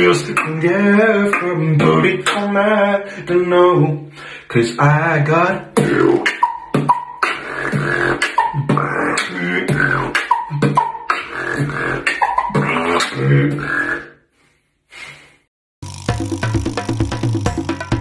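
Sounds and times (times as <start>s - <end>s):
beatboxing: 0.0s - 14.1s.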